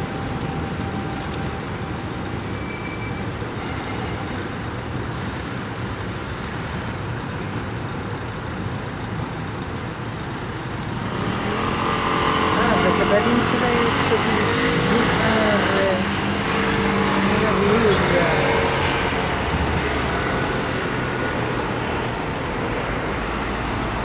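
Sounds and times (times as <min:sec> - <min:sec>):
faint high whine: 0:06.2 - 0:24.0
train rumble: 0:06.7 - 0:24.0.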